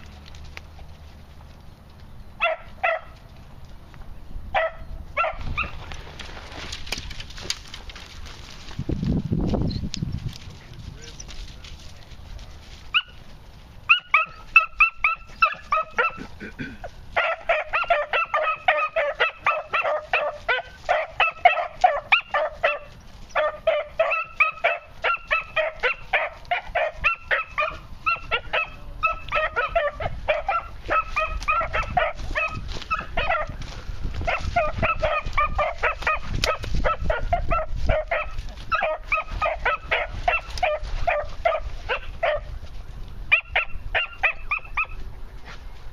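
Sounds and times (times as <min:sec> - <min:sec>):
puppies barking: 0:02.4 - 0:03.3, 0:04.5 - 0:05.8, 0:12.9 - 0:13.2, 0:13.8 - 0:42.6, 0:43.3 - 0:45.0.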